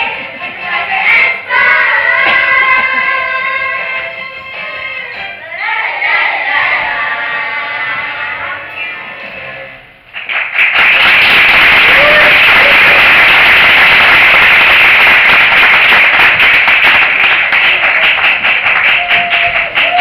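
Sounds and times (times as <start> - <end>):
song: 0.0 - 10.1
audience applause: 10.2 - 20.0
people whooping: 11.5 - 13.7, 18.8 - 20.0.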